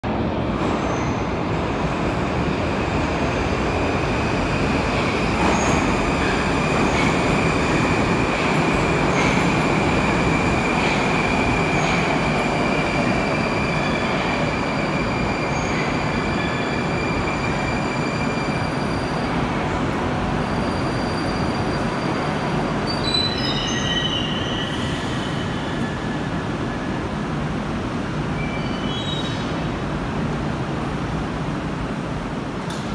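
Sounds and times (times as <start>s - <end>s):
metro train rolling: 0.0s - 32.9s.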